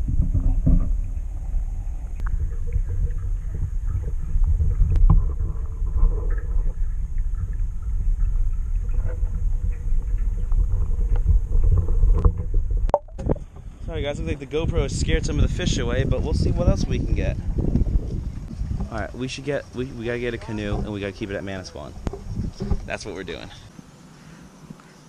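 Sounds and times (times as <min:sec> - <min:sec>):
underwater rumble of moving water: 0:00.0 - 0:24.6
sharp clicks underwater: 0:02.0 - 0:13.6, 0:22.0 - 0:23.0.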